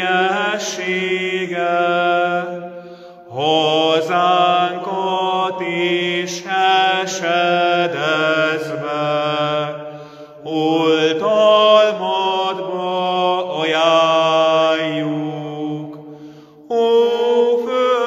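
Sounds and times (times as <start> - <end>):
man singing a hymn: 0.0 - 2.5, 10.5 - 15.9, 16.7 - 18.0.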